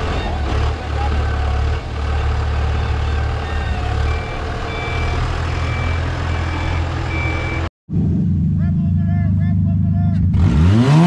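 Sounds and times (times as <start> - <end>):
diesel engine running: 0.0 - 11.0
reversing alarm beeping: 2.0 - 7.7.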